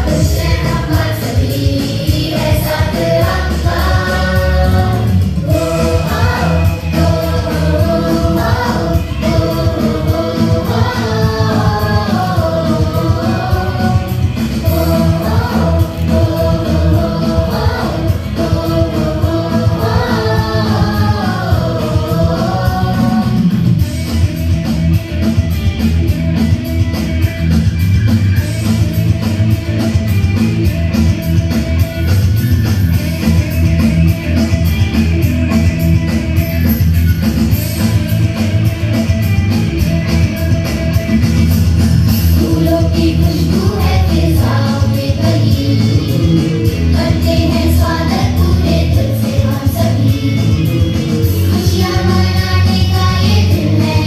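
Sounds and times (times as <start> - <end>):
person singing: 0.0 - 23.5
dance song with steady beat: 0.0 - 23.8.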